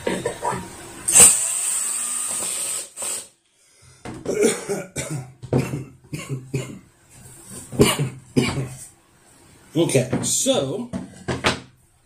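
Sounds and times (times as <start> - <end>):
man coughing and clearing throat: 0.0 - 0.6, 4.2 - 6.8, 7.7 - 8.9.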